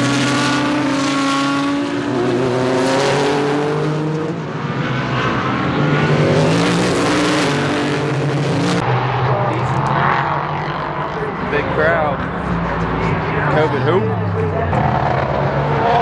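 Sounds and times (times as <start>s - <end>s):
race car engines passing: 0.0s - 16.0s.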